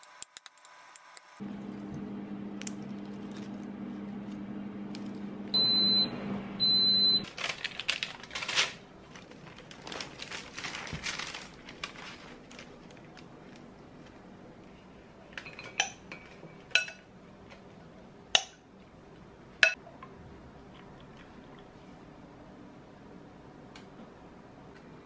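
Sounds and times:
air fryer humming: 1.4 - 7.3.

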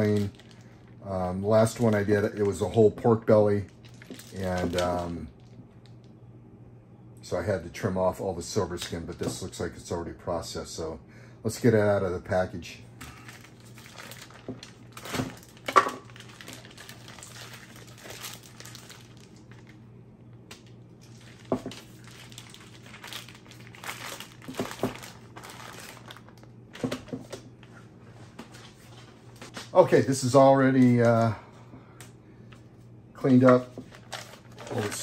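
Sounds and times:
plastic packaging crinkling: 0.0 - 6.0, 13.1 - 19.9, 20.5 - 27.7, 33.2 - 35.0.

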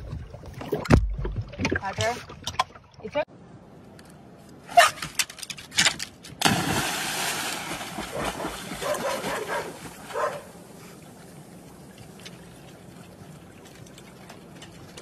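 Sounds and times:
water splashing and churning: 0.0 - 3.2, 6.4 - 15.0
dog splashing into water: 6.4 - 10.6.

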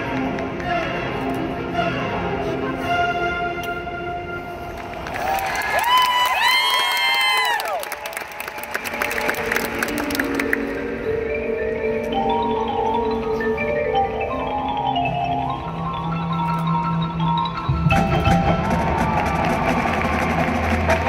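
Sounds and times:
lower band instruments: 0.0 - 5.0, 8.7 - 21.0
mallet percussion melody: 9.4 - 21.0.

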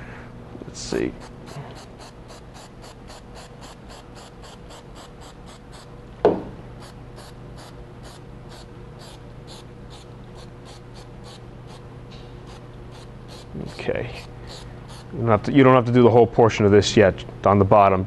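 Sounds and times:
sharp knock: 6.2 - 6.6.

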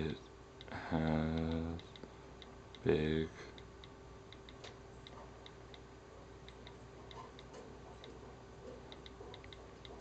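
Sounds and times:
faint on-screen keyboard clicks: 3.5 - 10.0.

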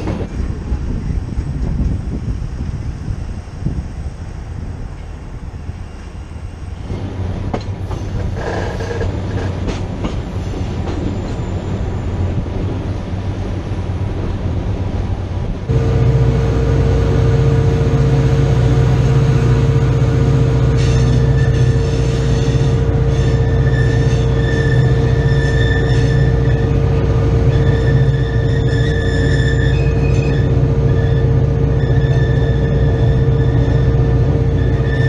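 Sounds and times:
locomotive engine drone: 0.0 - 35.0
train wheels clattering on rails: 6.8 - 12.0
steady hum: 15.7 - 21.8.

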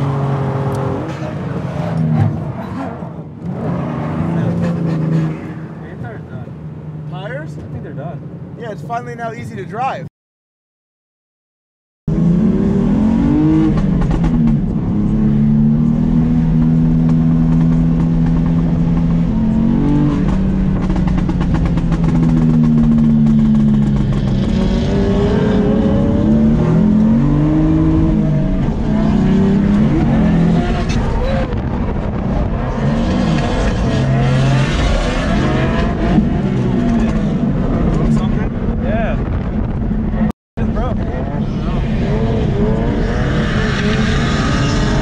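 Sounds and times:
car engine revving: 12.1 - 45.0.

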